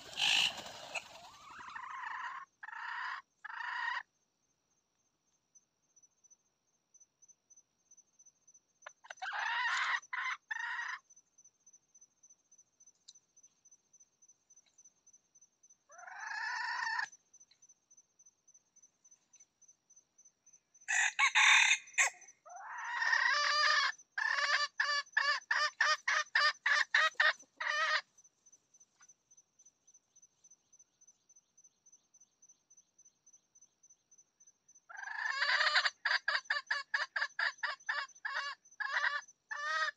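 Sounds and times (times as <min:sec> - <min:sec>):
rooster clucking: 0:00.0 - 0:02.8, 0:22.8 - 0:28.0
rooster crowing: 0:20.9 - 0:22.2.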